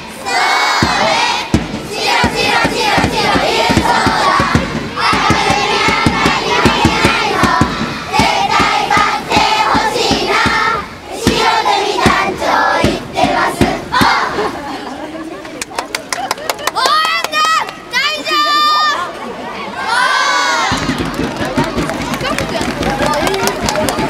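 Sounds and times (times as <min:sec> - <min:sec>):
children chanting a cheer: 0:00.0 - 0:14.6, 0:16.8 - 0:24.0
drum beats: 0:00.4 - 0:14.6, 0:20.6 - 0:24.0.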